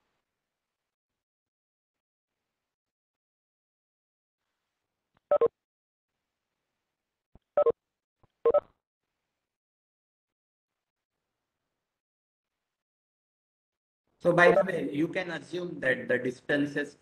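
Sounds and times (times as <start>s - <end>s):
electronic notification beeps: 14.4s - 14.7s.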